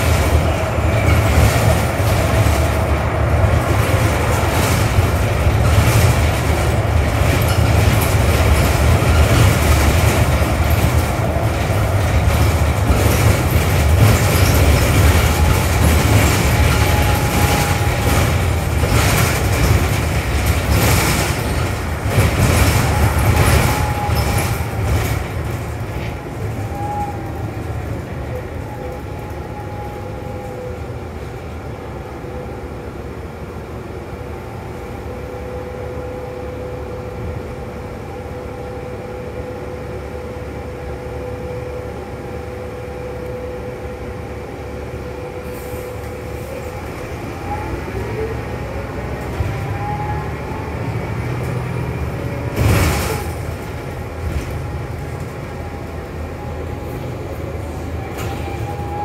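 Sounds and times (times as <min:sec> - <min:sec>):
rattles and knocks: 0:00.0 - 0:26.8
bus interior hum: 0:00.0 - 0:59.0.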